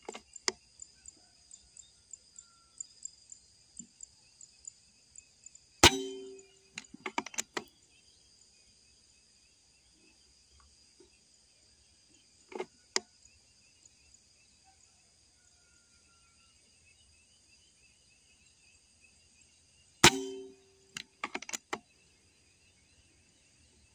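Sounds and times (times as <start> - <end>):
insect buzz: 0.0 - 23.9
air rifle shot: 5.8 - 6.4, 20.0 - 20.6.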